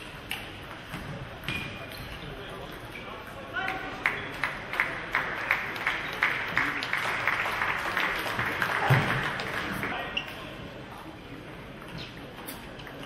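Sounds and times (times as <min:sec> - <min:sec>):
audience applauding: 0:04.0 - 0:09.9.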